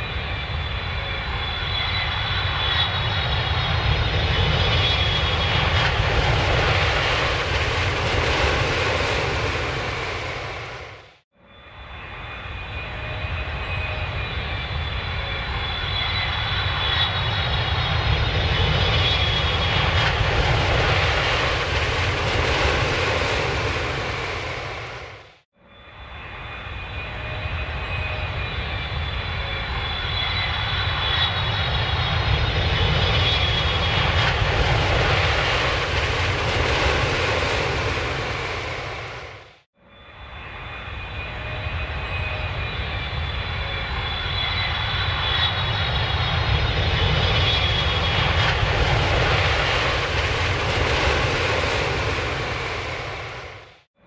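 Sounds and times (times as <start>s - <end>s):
airplane engine rumble: 0.0s - 53.9s
faint high whine: 9.8s - 19.8s, 23.8s - 34.4s, 38.0s - 48.5s.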